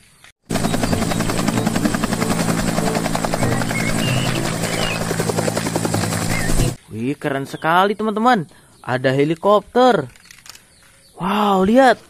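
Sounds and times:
helicopter rotor chop: 0:00.4 - 0:06.8
helicopter engine drone: 0:00.5 - 0:06.8.

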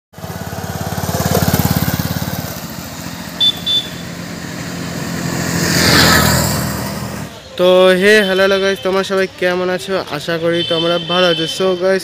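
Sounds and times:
motorcycle passing by: 0:00.2 - 0:07.4.

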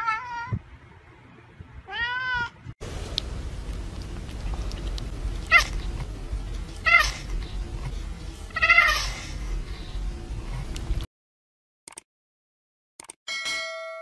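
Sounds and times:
background hiss and rumble: 0:00.6 - 0:11.1
cats meowing: 0:05.4 - 0:06.0, 0:06.8 - 0:07.4, 0:08.5 - 0:09.3.

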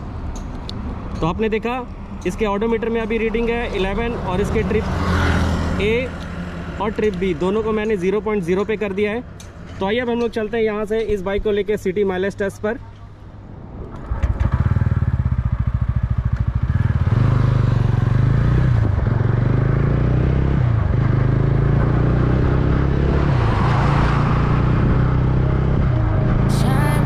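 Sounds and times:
motorcycle engine accelerating: 0:14.0 - 0:26.5
wind rushing over microphone: 0:20.2 - 0:26.5.

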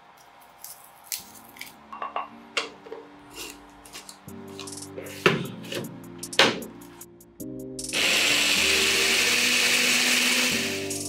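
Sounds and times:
blender grinding charcoal: 0:07.9 - 0:11.0.

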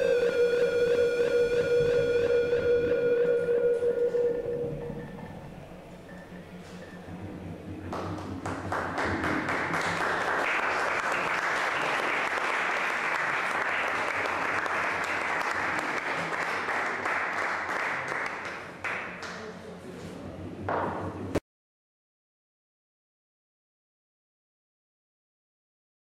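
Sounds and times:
audience applause: 0:07.9 - 0:19.3.

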